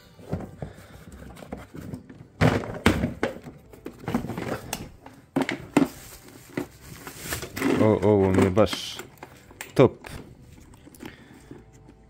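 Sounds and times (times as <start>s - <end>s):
loud plastic thunks: 2.0s - 6.0s
plastic toolbox lid knocking: 2.2s - 6.0s.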